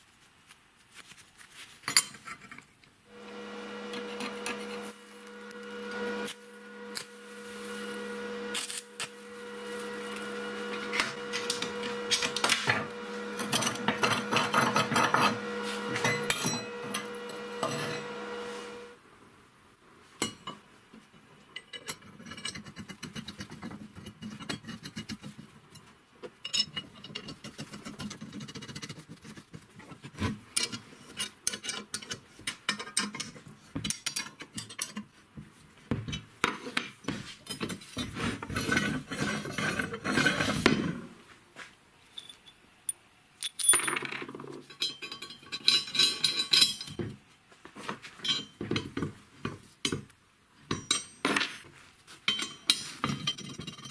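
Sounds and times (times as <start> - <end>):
steel parts clinking and scraping: 1.8 - 2.7, 3.9 - 18.9, 21.5 - 29.0, 30.5 - 35.2, 37.3 - 40.7, 42.1 - 47.2, 48.1 - 49.0, 50.7 - 53.9.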